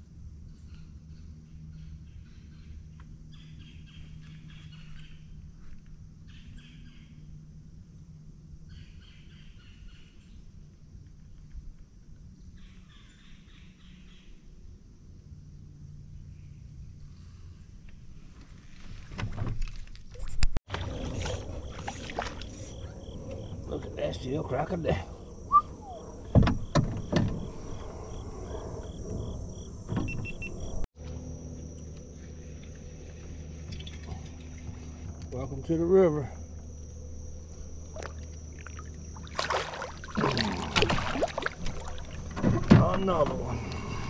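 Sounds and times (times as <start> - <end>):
low steady hum: 19.7 - 44.0
high insect chirping: 21.0 - 44.0
buzzy rasping animal calls: 21.6 - 30.7
loud knocks in a kayak: 26.3 - 27.4.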